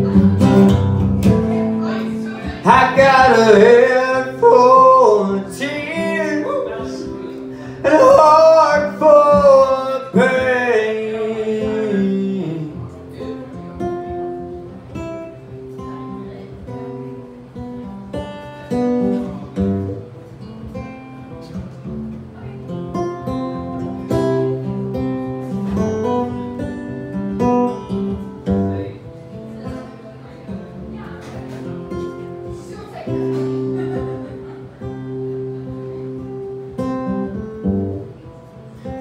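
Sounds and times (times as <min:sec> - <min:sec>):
acoustic guitar: 0:00.0 - 0:39.0
man singing: 0:02.4 - 0:13.4.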